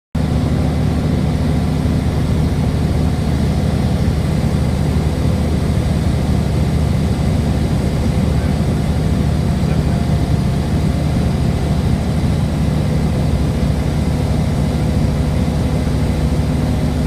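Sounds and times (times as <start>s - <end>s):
aircraft engine droning: 0.2s - 17.0s.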